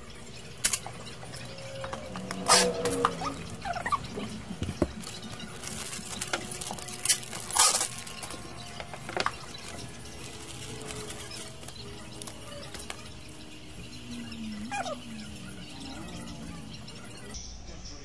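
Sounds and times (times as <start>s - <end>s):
plastic bag crinkling: 0.5s - 14.1s.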